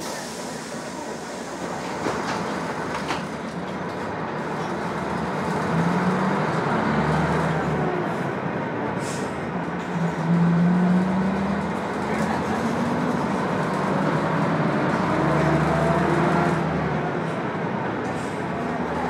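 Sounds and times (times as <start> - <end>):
bus diesel engine: 0.0 - 19.0.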